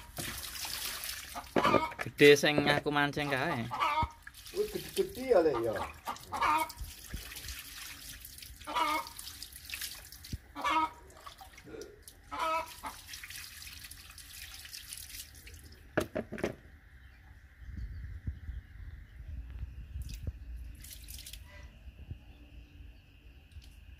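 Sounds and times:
water splashing from a scoop: 0.0 - 2.2, 4.2 - 15.8, 20.8 - 21.5.

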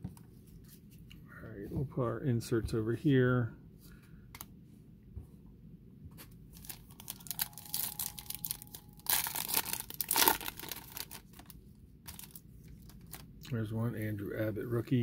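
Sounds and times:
wrapper crinkling: 6.5 - 13.4
card pack wrapper tearing: 6.6 - 13.3.

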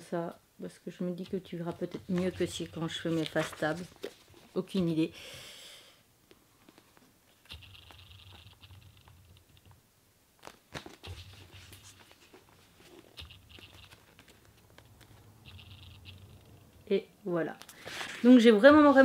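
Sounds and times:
paper rustling: 1.3 - 4.9, 10.4 - 16.8, 17.6 - 19.0
page flicks: 10.4 - 16.3.

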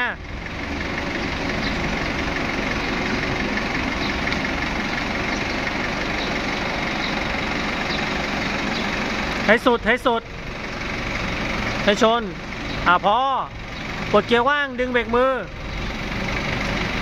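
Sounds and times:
forklift engine running: 0.0 - 17.0.

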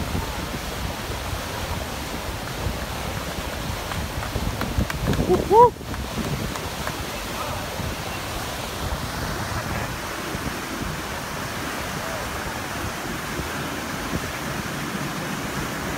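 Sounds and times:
floodwater rushing over bank: 0.0 - 15.9
wind on microphone: 0.0 - 15.9
faint voices: 5.1 - 8.5.

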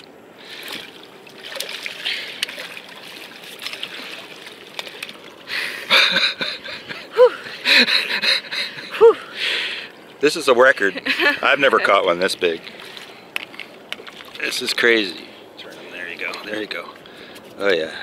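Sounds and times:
fish thrashing in water: 0.5 - 5.5.

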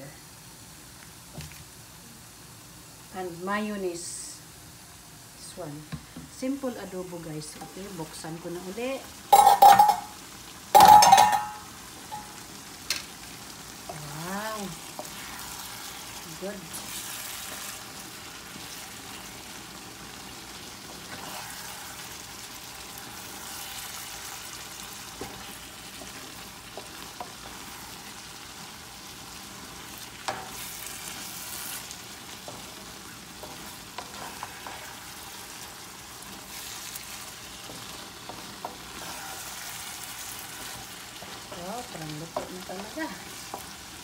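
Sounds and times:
food sizzling in a pan: 0.0 - 44.0
spoon knocking on pan: 9.3 - 10.1, 10.8 - 12.3
wooden spoon scraping a pan: 14.7 - 19.5, 20.7 - 28.3, 29.6 - 44.0.

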